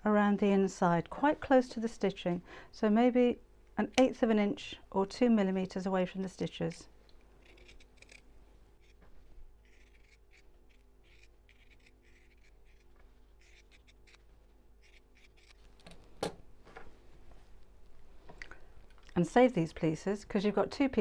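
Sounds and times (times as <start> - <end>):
scissors snipping fabric: 7.4 - 8.2, 9.7 - 14.2.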